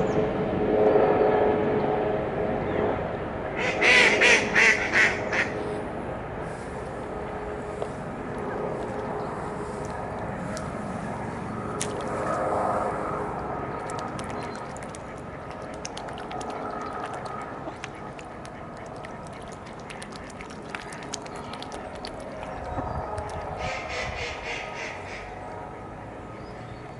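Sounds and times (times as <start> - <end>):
ducks quacking: 3.6 - 5.6, 13.0 - 25.9
ducks dabbling and splashing: 3.6 - 5.7, 6.5 - 26.4.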